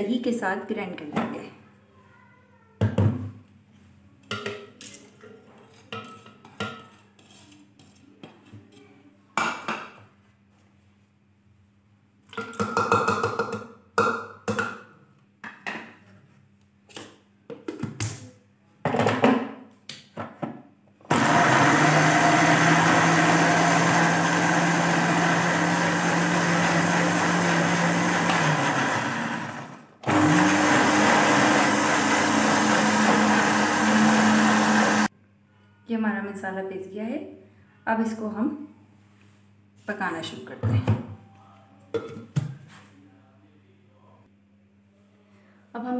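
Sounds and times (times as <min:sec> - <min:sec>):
dishes clinking and knocking: 0:12.3 - 0:16.0, 0:42.0 - 0:42.6
electric blender running: 0:21.1 - 0:35.1.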